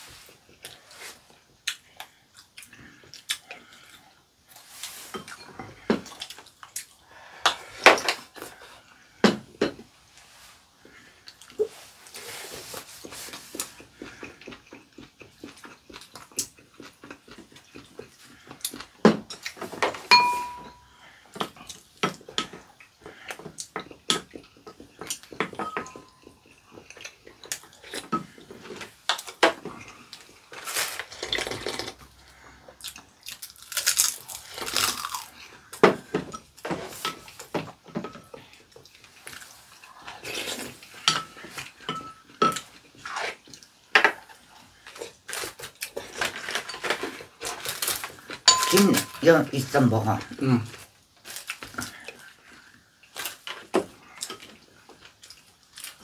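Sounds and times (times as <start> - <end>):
chewing and slurping: 10.3 - 19.8, 21.3 - 37.5, 38.2 - 48.4
utensils clinking on ceramic bowls: 20.1 - 20.9, 25.4 - 26.6, 41.0 - 42.7, 48.4 - 49.7.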